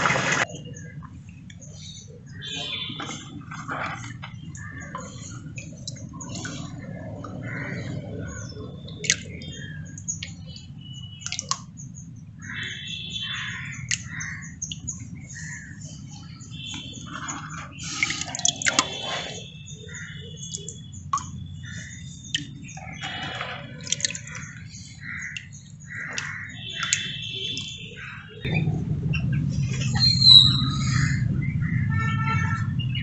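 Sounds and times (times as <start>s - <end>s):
birds chirping: 0.0s - 33.0s
water dripping and plopping: 2.4s - 28.2s
steady low hum: 28.0s - 33.0s.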